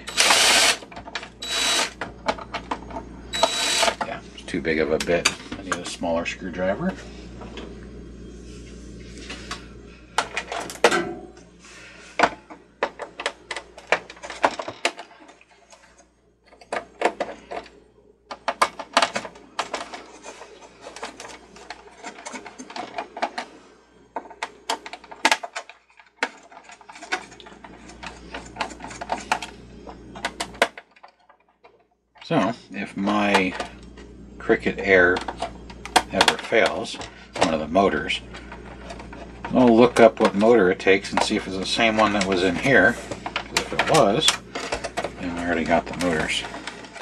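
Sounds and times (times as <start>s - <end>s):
plastic parts clicking and knocking: 12.2s - 15.8s, 16.4s - 17.7s, 18.3s - 23.5s, 24.1s - 29.5s, 30.1s - 32.3s, 38.4s - 47.0s.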